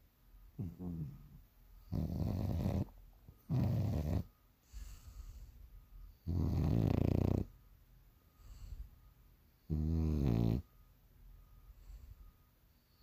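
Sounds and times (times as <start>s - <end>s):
dog snoring: 0.6s - 5.4s, 6.2s - 7.6s, 9.6s - 10.7s
dog breathing softly: 3.5s - 5.9s, 8.3s - 9.1s, 11.5s - 12.5s.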